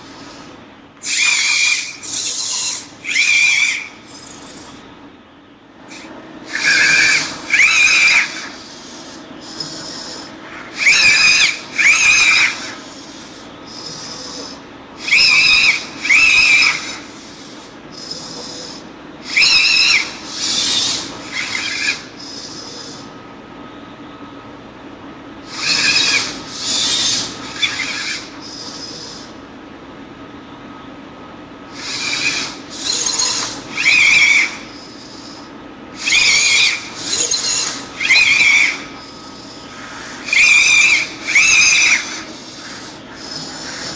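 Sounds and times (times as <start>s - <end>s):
servos whirring: 0.0s - 4.8s, 25.5s - 29.4s, 31.8s - 43.9s.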